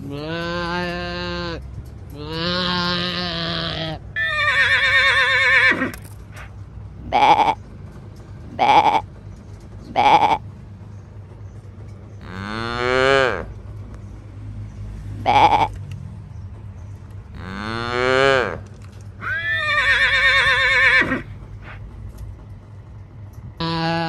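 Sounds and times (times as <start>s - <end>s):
sheep bleating: 2.2s - 5.4s, 7.1s - 7.6s, 8.6s - 9.1s, 10.0s - 10.4s, 15.2s - 15.8s, 23.6s - 24.0s
cow mooing: 12.2s - 13.5s, 17.4s - 18.6s.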